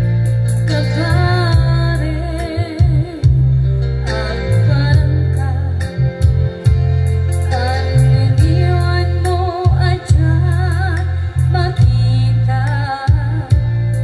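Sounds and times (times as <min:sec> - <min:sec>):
electronic keyboard backing: 0:00.0 - 0:14.0
heavy bass line: 0:00.0 - 0:14.0
woman singing with vibrato: 0:00.7 - 0:06.0, 0:07.5 - 0:14.0.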